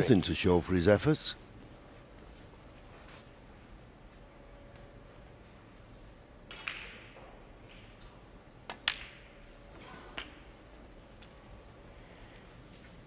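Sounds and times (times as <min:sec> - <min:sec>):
snooker balls clicking: 0:06.4 - 0:09.5.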